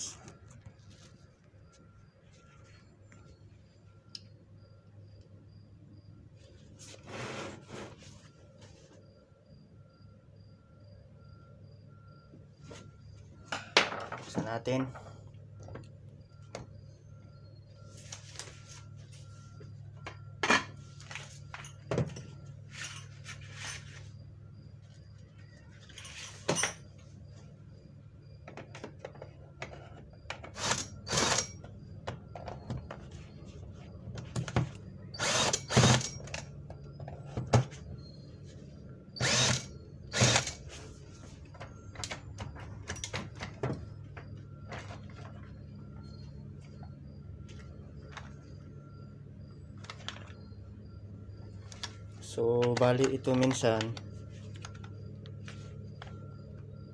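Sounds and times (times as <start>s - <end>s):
steady low hum: 0.0s - 56.9s
cordless drill bursts: 30.6s - 31.5s, 35.2s - 36.1s, 39.2s - 40.6s.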